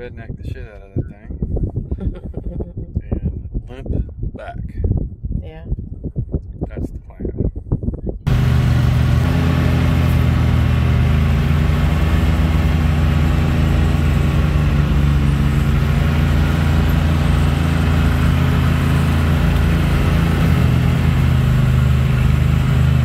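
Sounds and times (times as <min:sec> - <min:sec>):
utility vehicle engine running: 0:08.3 - 0:23.0.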